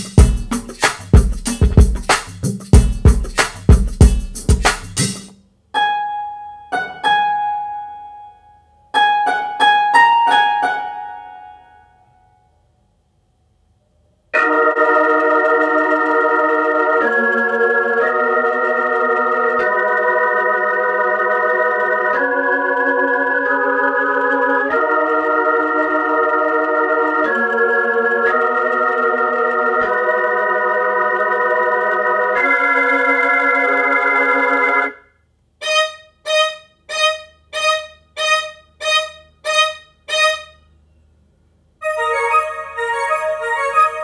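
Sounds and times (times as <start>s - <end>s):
electronic organ chords: 0.0s - 5.0s, 14.4s - 35.1s, 41.8s - 44.0s.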